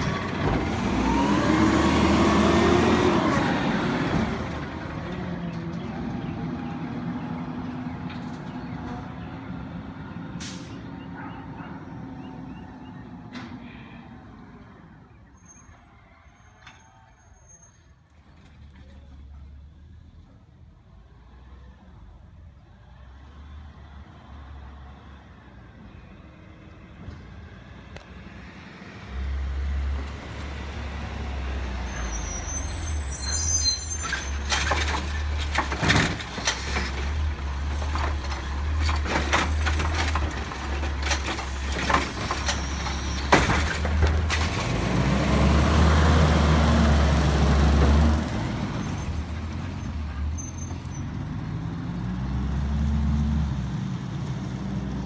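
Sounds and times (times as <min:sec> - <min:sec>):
truck engine revving: 0:00.0 - 0:08.1, 0:28.9 - 0:55.0
air brakes hissing: 0:10.4 - 0:10.9
cart clanking into hopper: 0:34.0 - 0:45.2.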